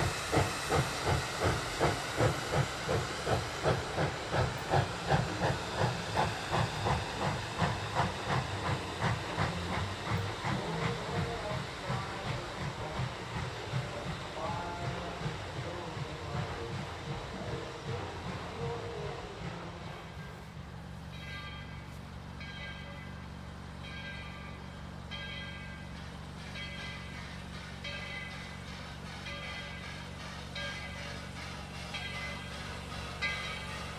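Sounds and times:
steam locomotive chuffing: 0.0 - 33.9.

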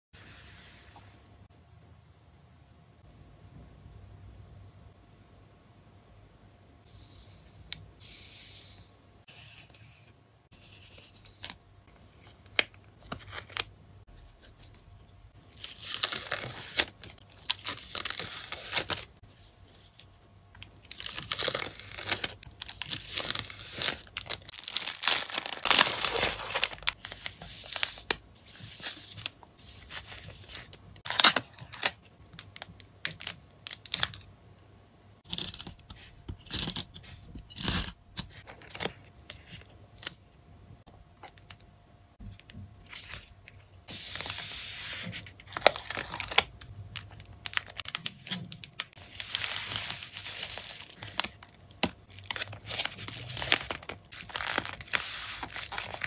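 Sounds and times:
plastic sleeves crinkling: 20.6 - 34.2, 45.1 - 56.0.

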